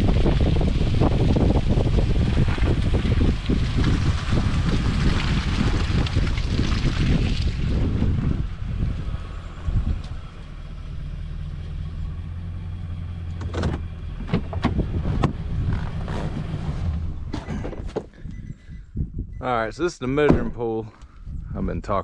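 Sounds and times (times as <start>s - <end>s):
diesel engine running: 7.6s - 18.8s.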